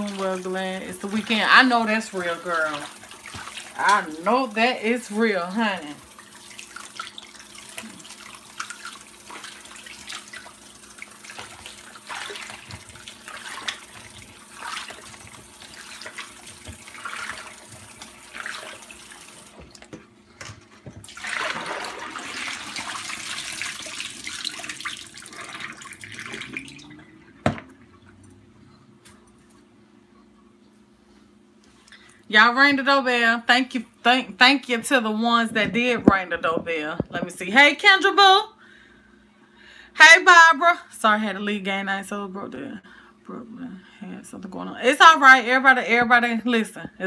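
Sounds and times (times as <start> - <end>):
tap water splashing into sink: 2.7 - 4.2, 6.1 - 20.0, 20.8 - 28.2.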